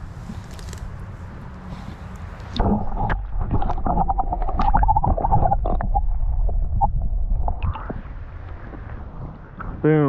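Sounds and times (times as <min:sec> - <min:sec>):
muffled underwater stream rumble: 0:02.6 - 0:09.8.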